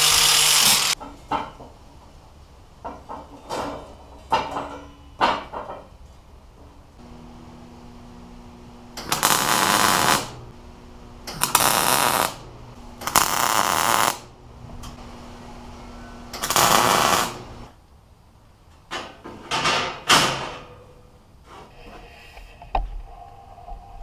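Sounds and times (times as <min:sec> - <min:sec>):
crackling welding bursts: 0:00.0 - 0:01.0, 0:07.0 - 0:14.4, 0:16.3 - 0:17.7
welder low steady hum: 0:07.0 - 0:17.7.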